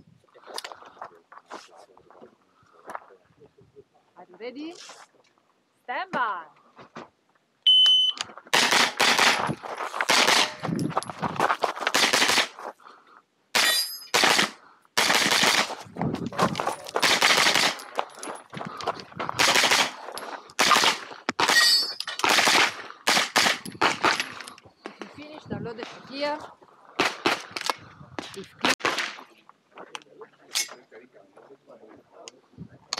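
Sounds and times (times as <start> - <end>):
carbine gunshots: 8.5 - 9.4, 10.0 - 10.6, 11.9 - 12.6, 13.6 - 15.8, 16.9 - 18.0, 19.4 - 20.0, 20.6 - 24.4, 27.0 - 27.6, 28.6 - 29.2.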